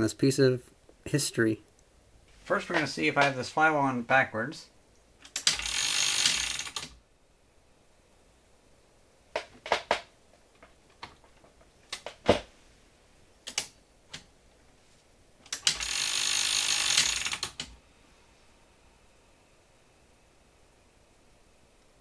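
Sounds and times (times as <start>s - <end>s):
mechanism clicks: 5.0s - 7.0s, 13.4s - 14.3s, 15.4s - 17.8s
gears running with rattling whir: 15.6s - 17.5s.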